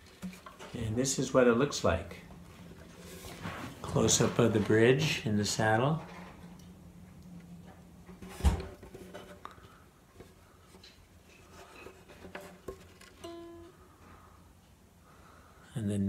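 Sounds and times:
ukulele strings ringing faintly: 13.2 - 13.8.

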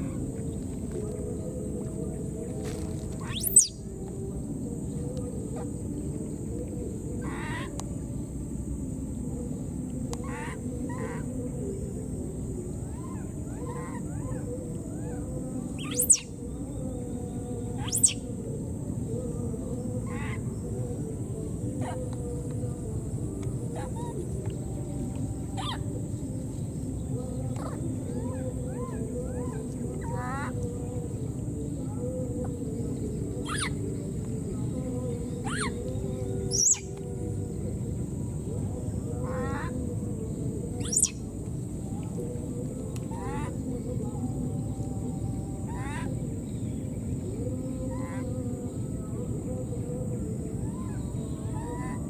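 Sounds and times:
steady background noise: 0.0 - 52.0
high-pitched animal calls: 3.2 - 3.8, 15.8 - 16.4, 17.8 - 18.2, 25.6 - 25.8, 33.4 - 33.8, 35.4 - 35.8, 36.5 - 36.9, 40.8 - 41.2.

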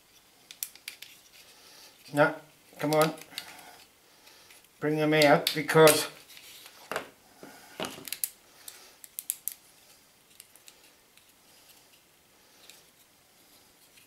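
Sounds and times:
wooden puzzle pieces clicking: 0.4 - 1.2, 9.0 - 9.6.

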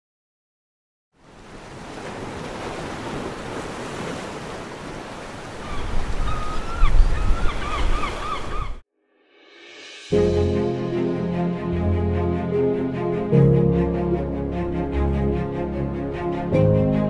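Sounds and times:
rushing surf: 1.2 - 8.7
wind buffeting microphone: 5.4 - 8.8
warbling calls: 5.5 - 8.8.

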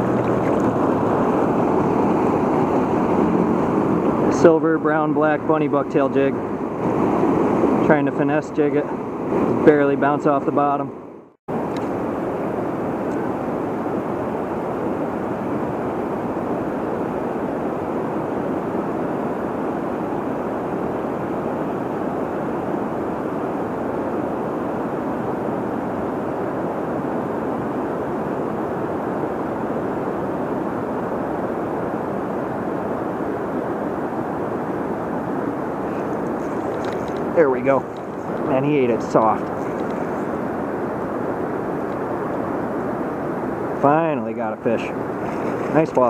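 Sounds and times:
river rushing over dam: 11.5 - 46.0.

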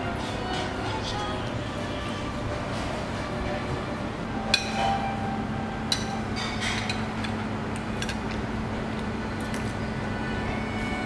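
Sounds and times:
tableware clinking: 4.5 - 5.2, 5.9 - 7.3.

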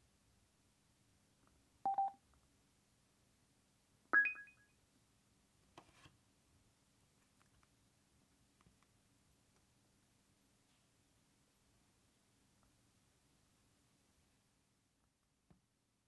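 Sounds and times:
electronic double beep: 4.2 - 4.6
click: 7.2 - 7.7.

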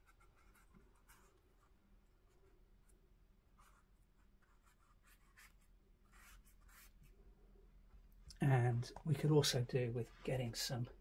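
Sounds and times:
paintbrush scratching on paper: 0.0 - 2.5, 3.6 - 7.2.

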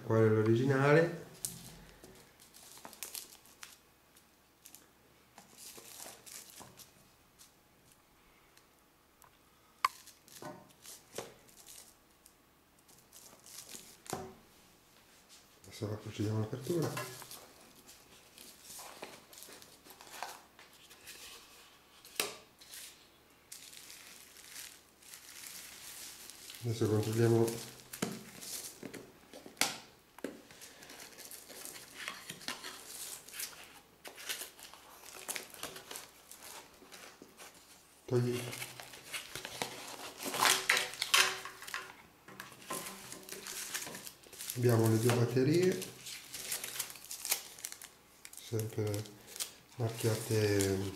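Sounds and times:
cardboard and paper scraping and rustling: 16.6 - 23.0, 30.6 - 50.9.

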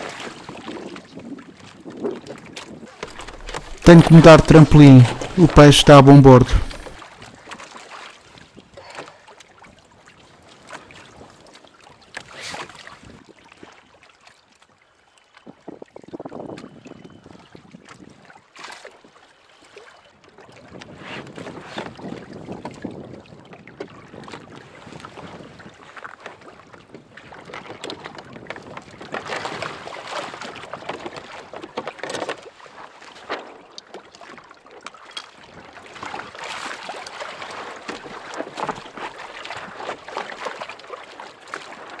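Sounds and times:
water slapping against hull: 2.2 - 8.0, 21.4 - 42.0.

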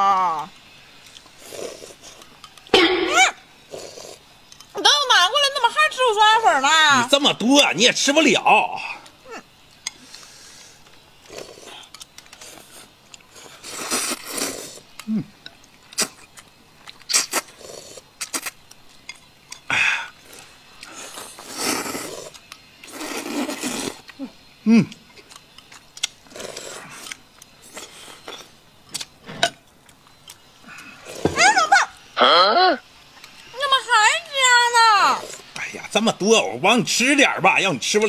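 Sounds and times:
people slurping noodles: 1.1 - 4.2, 10.0 - 15.4, 16.0 - 16.4, 17.1 - 18.6, 19.7 - 25.0, 26.3 - 28.5, 30.6 - 31.6, 35.1 - 35.5.

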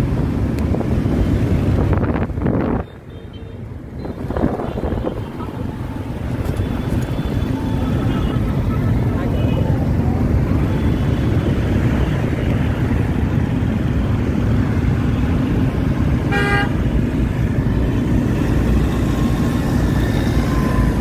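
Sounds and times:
motor scooters in dense traffic: 0.0 - 21.0
vehicle horn toot: 16.3 - 16.8.

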